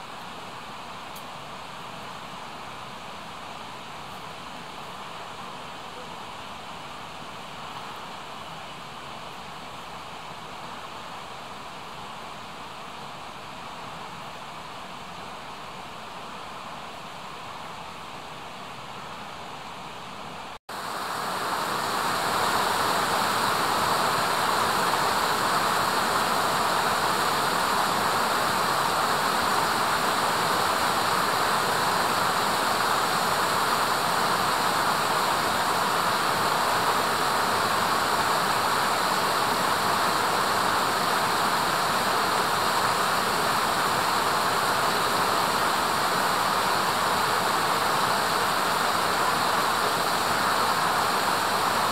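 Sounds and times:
flowing water rushing: 0:20.7 - 0:51.9.

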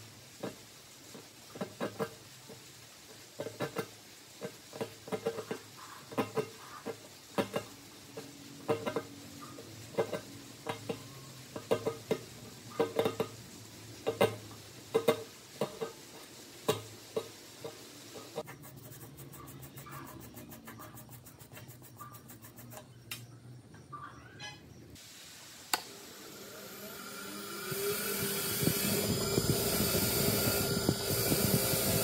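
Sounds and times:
wire brush scrubbing metal: 0:03.4 - 0:23.0, 0:26.0 - 0:32.0.

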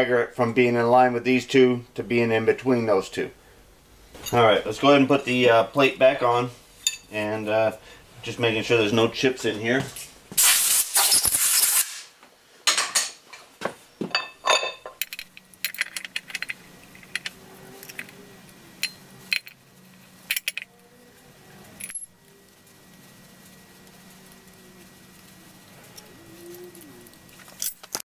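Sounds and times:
compressed air blast: 0:10.4 - 0:12.1
metal clinks and taps: 0:14.1 - 0:18.1.

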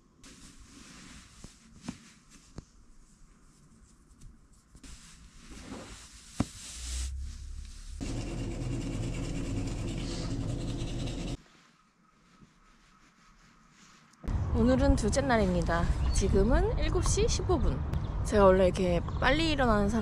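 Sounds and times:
socks rustling on bedding: 0:00.2 - 0:08.0.

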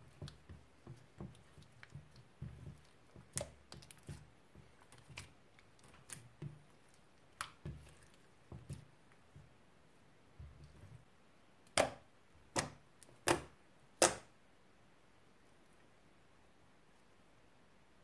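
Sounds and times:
hands squishing slime: 0:00.0 - 0:09.6.

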